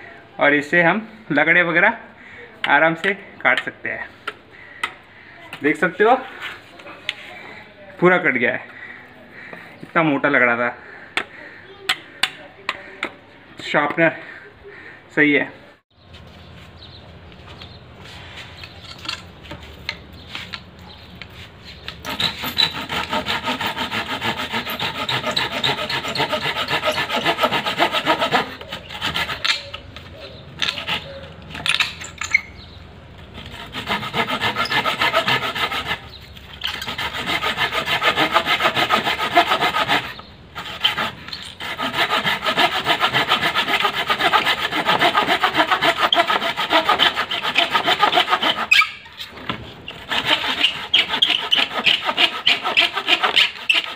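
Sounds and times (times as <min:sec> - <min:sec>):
hand saw cutting wood: 0:21.7 - 0:29.8, 0:30.6 - 0:32.4, 0:33.3 - 0:53.9.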